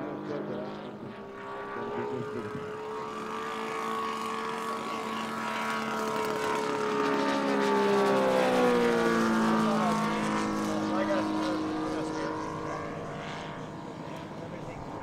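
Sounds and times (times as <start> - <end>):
model plane radial engine: 0.0 - 15.0.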